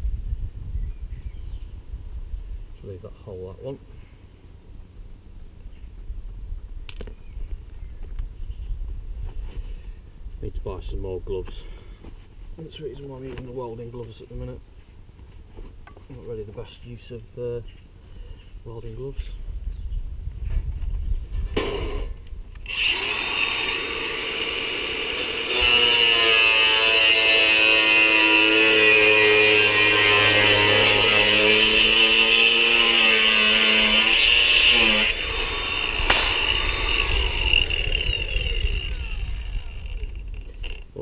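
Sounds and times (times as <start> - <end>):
angle grinder cutting sheet steel: 21.6 - 40.8
grinder disc winding down: 33.8 - 40.9.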